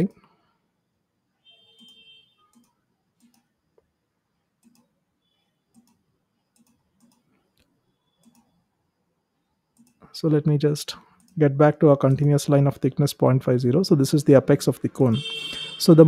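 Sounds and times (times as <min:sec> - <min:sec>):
computer mouse clicks: 0:01.8 - 0:03.6, 0:04.6 - 0:04.9, 0:05.7 - 0:08.6, 0:09.7 - 0:10.0, 0:11.1 - 0:11.4.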